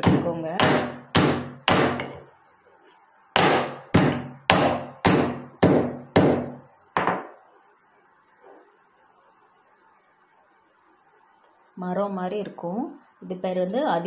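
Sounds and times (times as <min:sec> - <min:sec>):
pestle pounding in stone mortar: 0:00.0 - 0:02.2, 0:03.4 - 0:07.3.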